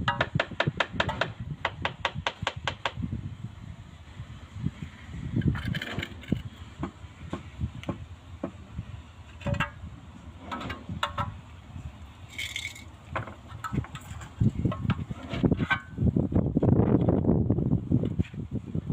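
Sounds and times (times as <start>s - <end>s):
trowel and tile knocks and scrapes: 9.4s - 9.8s.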